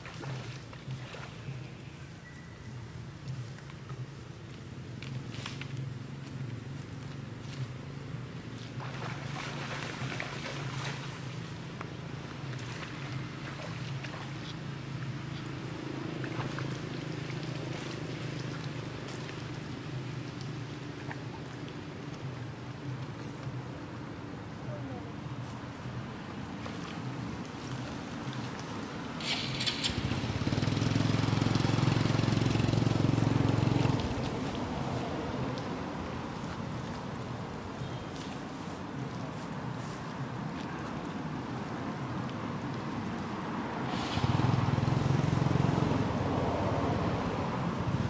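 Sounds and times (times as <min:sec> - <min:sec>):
brief hiss: 0:43.9 - 0:44.5.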